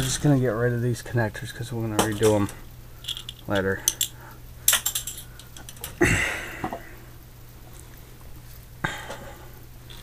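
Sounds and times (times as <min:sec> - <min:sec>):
steady low hum: 0:00.0 - 0:10.0
person coughing: 0:06.0 - 0:06.8.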